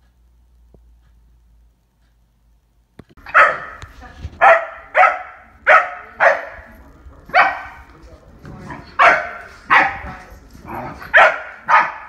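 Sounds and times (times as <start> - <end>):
dog barking: 3.2 - 6.7, 7.3 - 7.9, 8.7 - 12.0.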